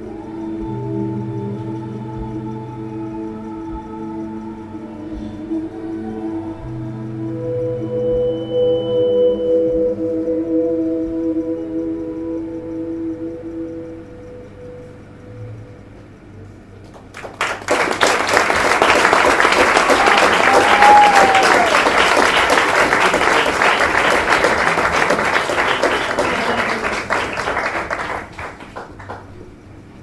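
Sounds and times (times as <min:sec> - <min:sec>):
audience applauding: 0:16.9 - 0:29.4.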